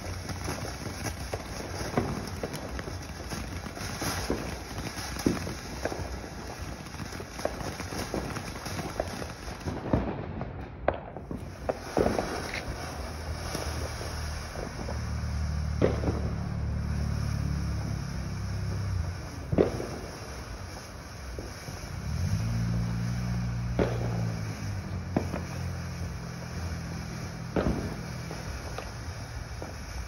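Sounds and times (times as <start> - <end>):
fireworks hissing and crackling: 0.0 - 30.0
sharp firework cracks: 0.0 - 30.0
passing car engine hum: 12.7 - 20.4, 21.5 - 29.8.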